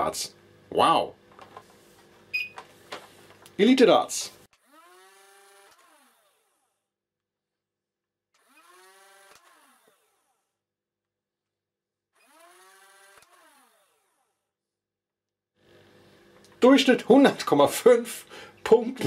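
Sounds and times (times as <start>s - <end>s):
flywheel motors whining: 4.5s - 6.8s.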